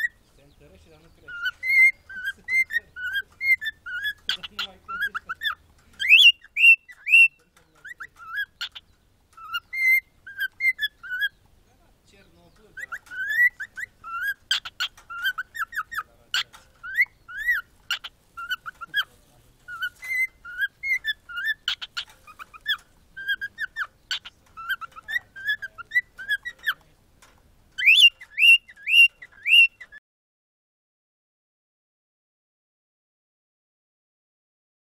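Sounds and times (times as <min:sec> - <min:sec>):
cockatiel chirps: 0:00.0 - 0:00.2, 0:01.0 - 0:11.5, 0:12.7 - 0:26.8, 0:27.8 - 0:30.0
cockatiel whistling: 0:01.3 - 0:08.8, 0:09.4 - 0:11.3, 0:12.8 - 0:16.1, 0:19.7 - 0:26.8, 0:27.8 - 0:30.0.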